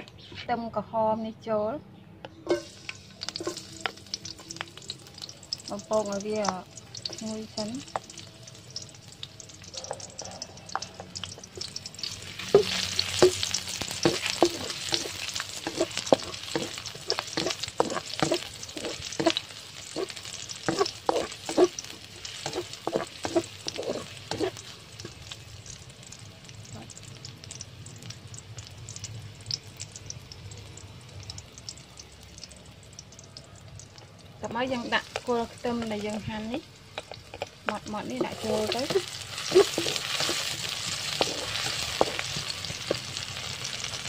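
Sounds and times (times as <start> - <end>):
shallots sizzling in hot oil: 2.4 - 44.0
spatula scraping a wok: 12.0 - 25.2, 38.2 - 43.5.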